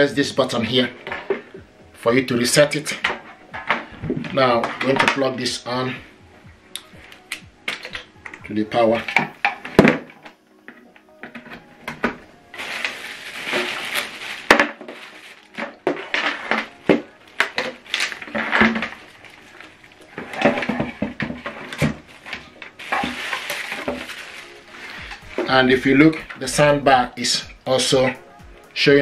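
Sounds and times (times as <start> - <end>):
plastic packaging crinkling: 11.2 - 27.0.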